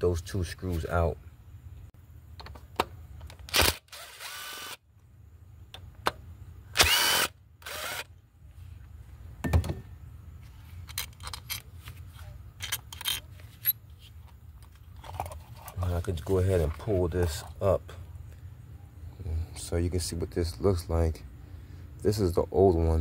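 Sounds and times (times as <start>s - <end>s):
cordless drill motor whine: 3.6s - 4.8s, 6.8s - 8.1s.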